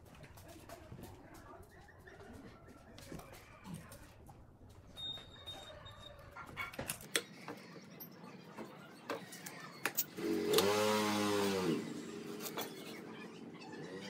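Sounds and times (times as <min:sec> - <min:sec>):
motor running: 0:10.1 - 0:14.0.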